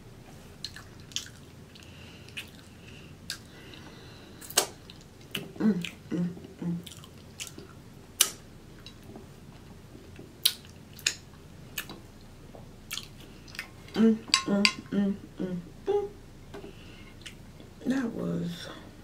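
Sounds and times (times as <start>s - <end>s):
woman chewing wetly: 0.6s - 3.8s, 4.4s - 9.1s, 12.9s - 13.9s
lip smacks: 3.3s - 3.5s, 4.4s - 6.0s, 6.8s - 9.0s, 10.4s - 12.0s
woman humming mm: 5.4s - 6.9s, 13.8s - 16.2s.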